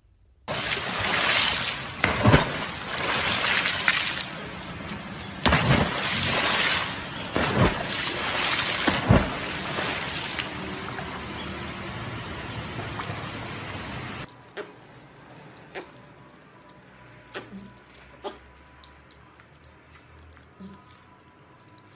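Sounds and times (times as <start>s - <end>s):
dogs splashing into river: 0.5s - 13.3s
water rushing alongside boat: 0.5s - 14.3s.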